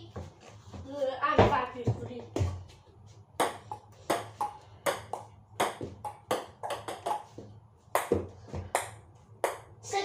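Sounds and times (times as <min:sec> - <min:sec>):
ping-pong ball hits: 0:03.4 - 0:07.3, 0:07.9 - 0:09.7.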